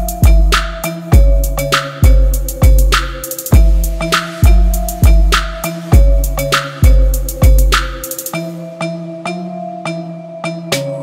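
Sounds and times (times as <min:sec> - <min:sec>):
sharp percussion hits: 0:00.0 - 0:08.7
steady held tones: 0:00.0 - 0:11.0.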